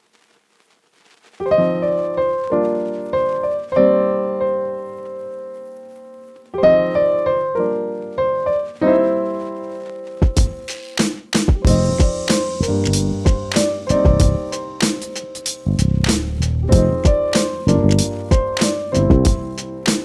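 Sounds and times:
piano chords ringing: 0:01.4 - 0:10.7, 0:11.6 - 0:16.0, 0:16.6 - 0:20.0.

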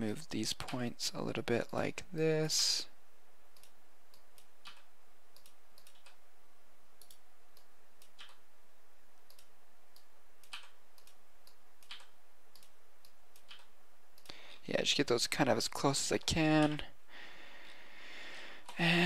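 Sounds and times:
steady background hiss: 0:00.0 - 0:19.0
computer mouse clicks: 0:03.6 - 0:06.2, 0:07.0 - 0:08.4, 0:09.2 - 0:14.4.

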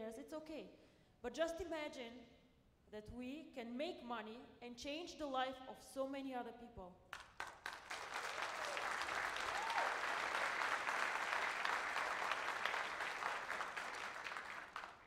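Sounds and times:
audience applauding: 0:07.2 - 0:15.0.

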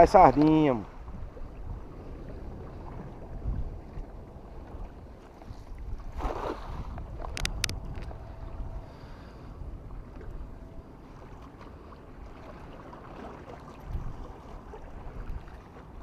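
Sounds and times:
waves lapping against rocks: 0:00.0 - 0:08.1
wind buffeting microphone: 0:00.0 - 0:16.0.

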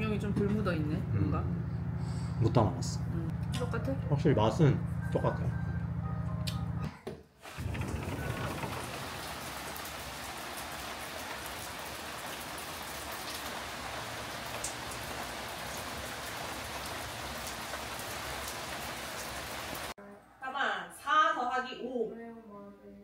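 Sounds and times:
steady rain falling: 0:07.4 - 0:20.0.

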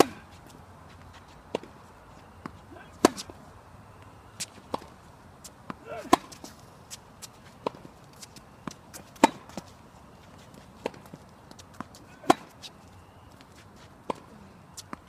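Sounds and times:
tennis ball racket hits: 0:00.0 - 0:00.6, 0:02.4 - 0:03.4, 0:04.4 - 0:05.0, 0:05.6 - 0:09.8, 0:10.6 - 0:12.7
tennis ball bouncing: 0:00.0 - 0:03.4, 0:04.4 - 0:15.0.

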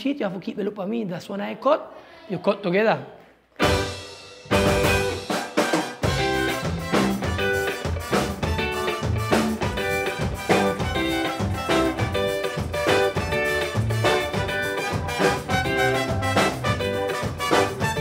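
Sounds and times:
drum kit beat: 0:03.6 - 0:18.0
upbeat band music: 0:03.6 - 0:18.0.

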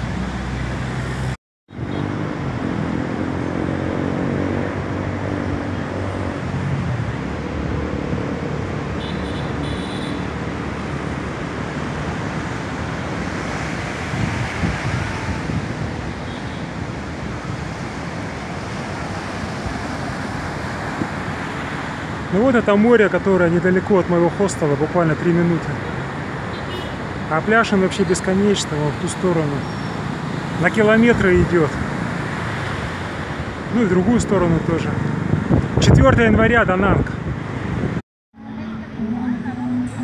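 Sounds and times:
road traffic passing: 0:00.0 - 0:40.0
wind: 0:00.0 - 0:40.0
heavy sea surf: 0:10.4 - 0:22.4.

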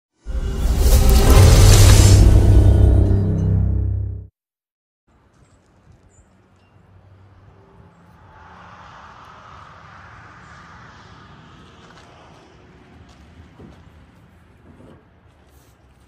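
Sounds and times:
low rumble: 0:00.3 - 0:04.2, 0:08.1 - 0:13.4
hiss: 0:08.2 - 0:12.7.

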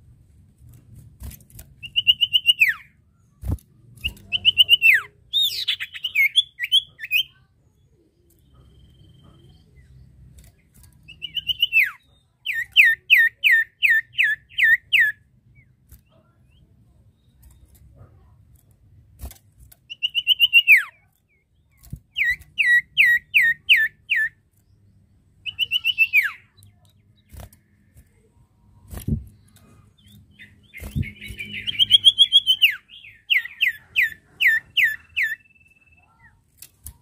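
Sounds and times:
bird whistling and trilling: 0:01.8 - 0:02.9, 0:04.0 - 0:07.3, 0:11.1 - 0:15.2, 0:19.9 - 0:20.9, 0:22.1 - 0:24.4, 0:25.5 - 0:26.5, 0:30.4 - 0:36.0.

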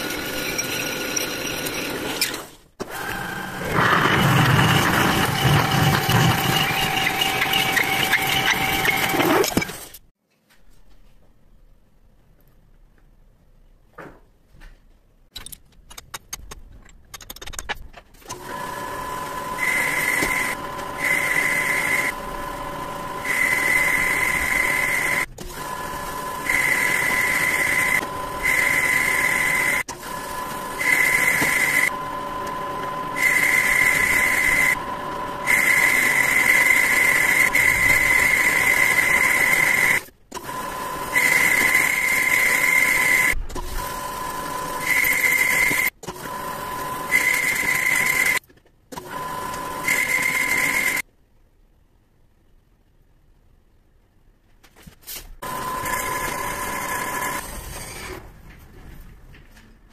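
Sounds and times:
high machining tone: 0:00.0 - 0:09.7, 0:18.5 - 0:40.0, 0:55.4 - 0:58.1
lathe whining: 0:00.0 - 0:09.9, 0:18.3 - 0:48.4, 0:49.1 - 0:51.0, 0:55.4 - 0:58.2.

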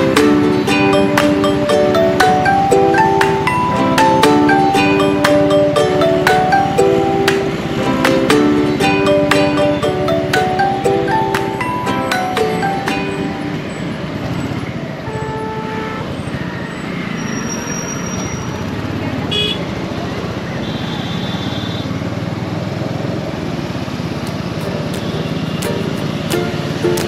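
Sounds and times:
road noise: 0:00.0 - 0:27.0
vehicle horns honking: 0:14.9 - 0:16.4, 0:19.3 - 0:19.7, 0:20.6 - 0:22.1, 0:24.7 - 0:26.8
motorcycle engine: 0:21.9 - 0:27.0.

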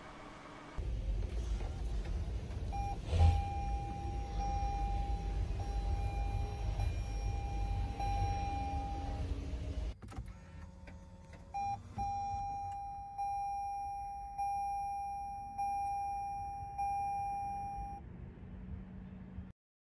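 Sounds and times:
dashboard warning chime dings: 0:02.8 - 0:09.3, 0:11.6 - 0:18.0
short beep: 0:11.6 - 0:18.0.

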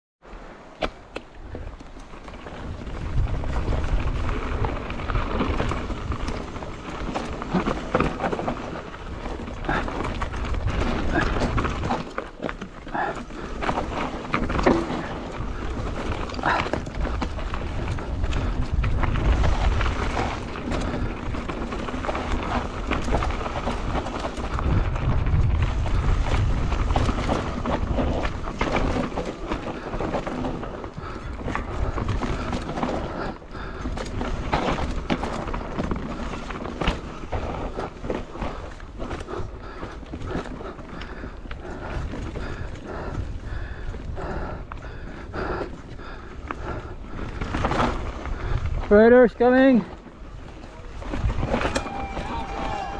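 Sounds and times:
bike tyres rolling over dirt: 0:00.3 - 0:52.9
bike frame and chain rattling: 0:01.5 - 0:44.4.

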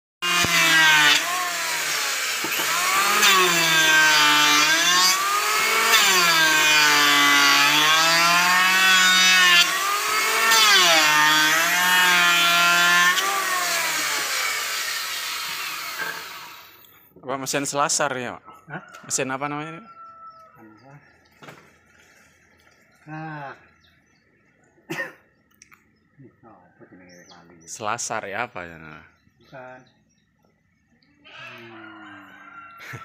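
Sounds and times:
electric planer shaving wood: 0:00.2 - 0:16.8.

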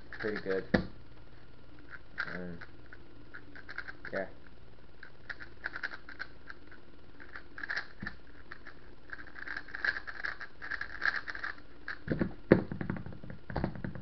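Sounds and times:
speed cube plastic clicking: 0:00.1 - 0:00.6, 0:03.3 - 0:04.0, 0:05.3 - 0:06.6, 0:07.2 - 0:12.3.

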